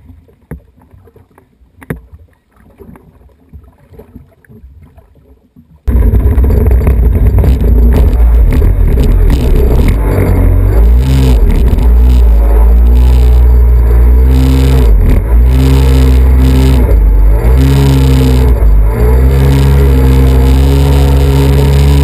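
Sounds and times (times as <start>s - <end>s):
jet ski engine revving: 5.9s - 22.0s.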